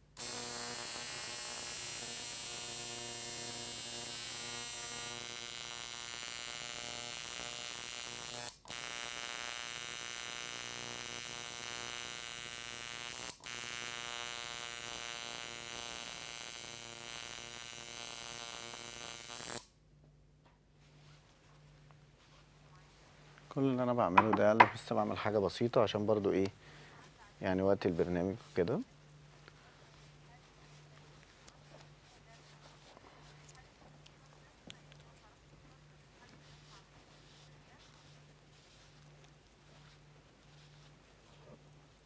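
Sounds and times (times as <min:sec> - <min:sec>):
tattoo machine buzzing: 0:00.1 - 0:19.7, 0:24.2 - 0:24.7.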